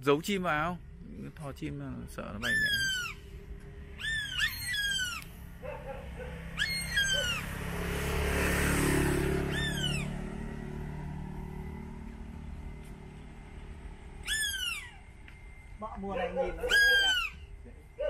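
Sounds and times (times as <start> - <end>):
hawk screaming: 2.4 - 7.6, 9.4 - 10.2, 14.2 - 15.1, 16.4 - 17.5.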